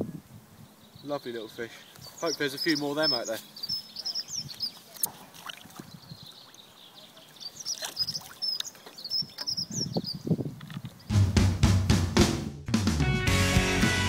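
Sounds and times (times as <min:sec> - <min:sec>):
small birds chirping: 0:00.0 - 0:11.2
drum-heavy music: 0:11.1 - 0:14.0.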